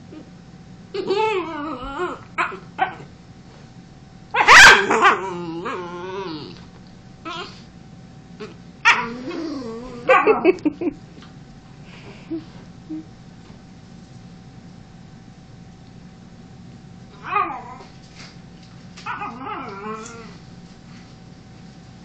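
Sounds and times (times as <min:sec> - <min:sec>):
small dog barking and whining: 0:01.0 - 0:03.1, 0:04.3 - 0:06.6, 0:07.2 - 0:07.6, 0:08.4 - 0:10.4, 0:17.1 - 0:17.9, 0:19.0 - 0:20.4.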